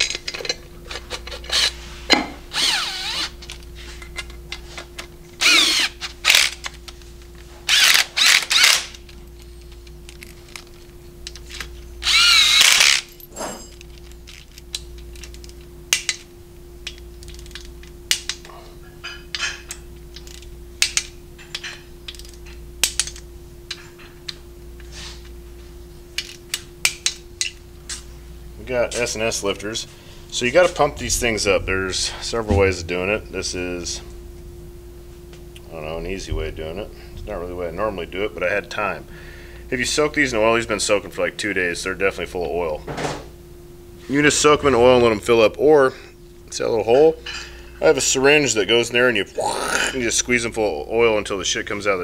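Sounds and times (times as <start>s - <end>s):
electric ratchet whirring: 2.5s - 3.5s, 5.4s - 6.7s, 7.7s - 9.0s, 12.0s - 13.2s
tools clicking and tapping: 13.5s - 24.4s.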